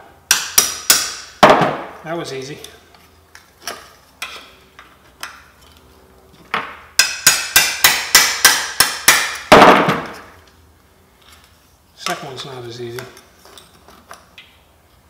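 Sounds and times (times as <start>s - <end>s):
hammer striking steel punch: 0.3s - 1.9s, 7.0s - 10.2s.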